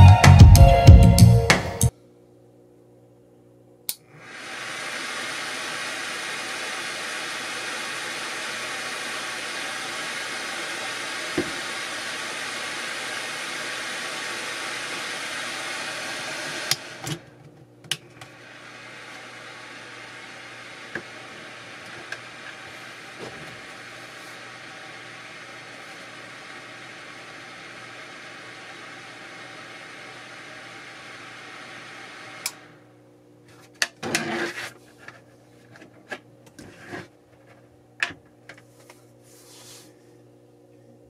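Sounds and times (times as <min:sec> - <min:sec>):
heater fan blowing air: 0:03.9 - 0:36.8.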